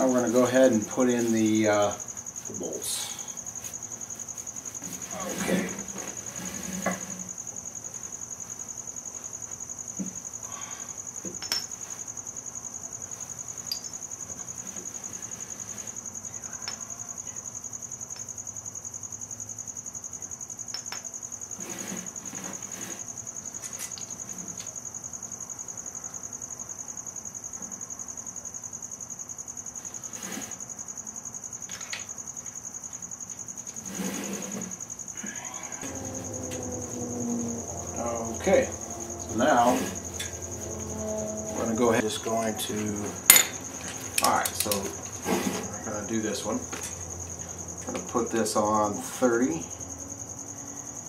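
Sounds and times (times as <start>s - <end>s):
bolts and tools clinking: 11.4s - 11.8s, 13.7s - 14.0s, 43.3s - 44.9s
high-pitched pulsing whine: 35.2s - 49.8s.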